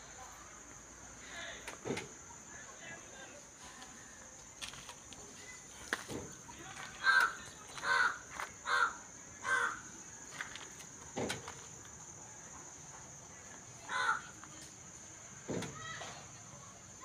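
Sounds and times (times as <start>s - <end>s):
crow cawing: 7.0s - 9.9s, 13.9s - 14.4s.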